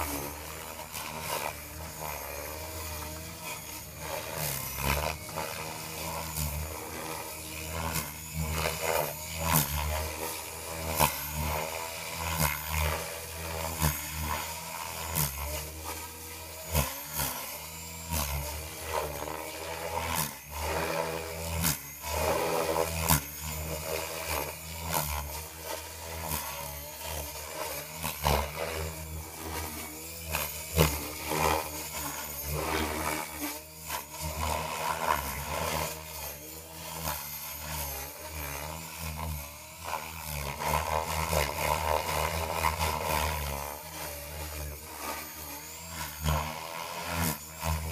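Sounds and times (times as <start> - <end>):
helicopter rotor whooshing: 27.0 - 36.0.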